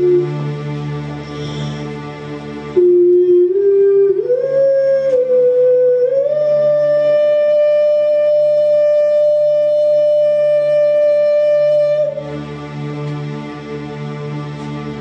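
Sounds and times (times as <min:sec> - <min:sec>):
keyboard chords: 0:00.0 - 0:15.0.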